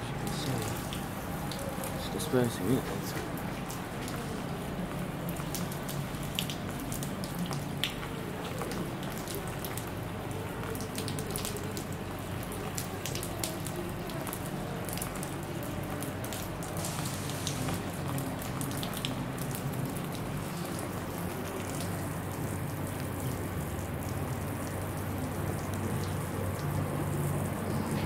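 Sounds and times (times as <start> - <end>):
water dripping and splashing: 0.0 - 28.0
water spraying on glass: 16.2 - 19.5.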